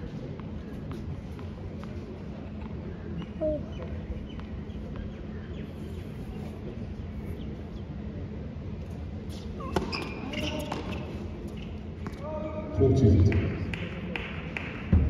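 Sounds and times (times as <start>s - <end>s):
low background hum: 0.0s - 15.0s
tennis ball bouncing: 0.3s - 2.0s, 9.3s - 12.2s.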